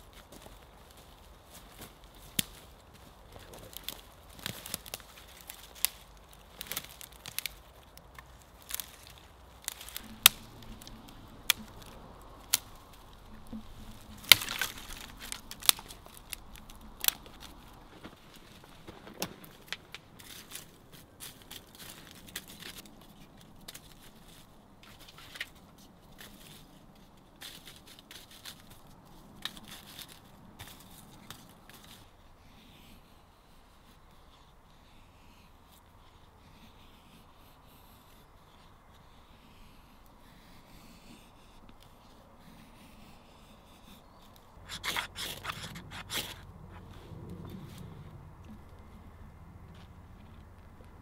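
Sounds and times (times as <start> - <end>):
rustling of dry sticks: 0.0 - 51.0
dry twigs snapping: 1.5 - 25.6, 27.4 - 32.0.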